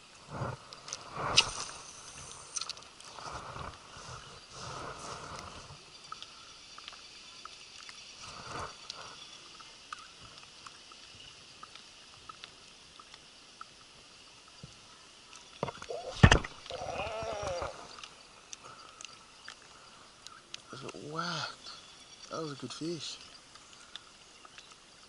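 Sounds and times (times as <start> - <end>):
insects hissing: 0.0 - 25.0
light ticks: 5.3 - 8.1, 8.8 - 15.8, 17.4 - 21.0, 21.6 - 25.0.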